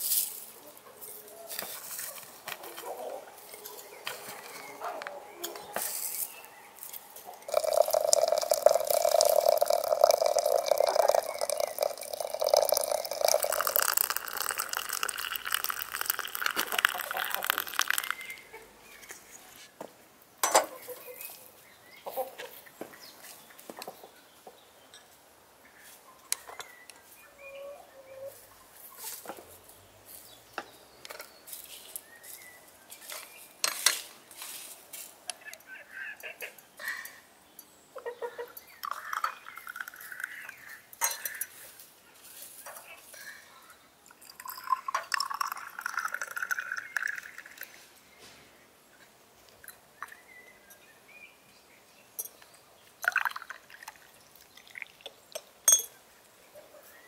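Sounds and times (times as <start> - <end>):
water pouring: 7.4 - 18.4, 38.8 - 40.7, 44.1 - 47.8, 53.0 - 55.2.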